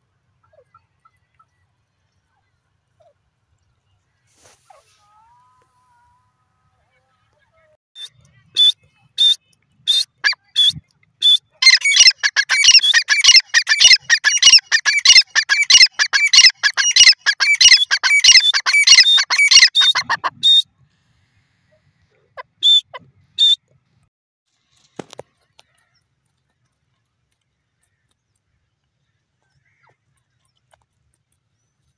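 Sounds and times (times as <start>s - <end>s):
francolin calling: 9.9s - 20.6s.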